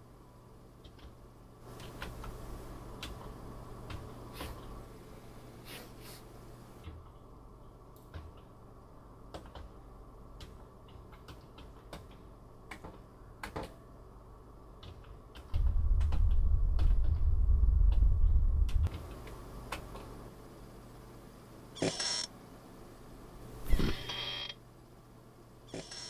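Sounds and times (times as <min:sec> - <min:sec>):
loud low rumble: 0:15.5 - 0:19.0.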